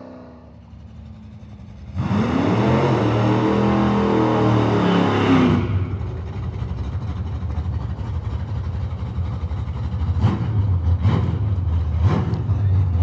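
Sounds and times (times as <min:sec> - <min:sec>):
low uneven engine rumble: 0:00.0 - 0:02.0, 0:05.6 - 0:13.0
race car engine running hard: 0:00.0 - 0:13.0.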